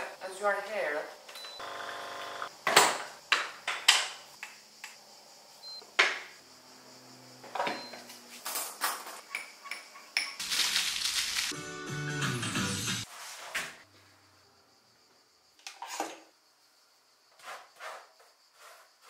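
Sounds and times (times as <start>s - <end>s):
music: 11.5s - 13.1s.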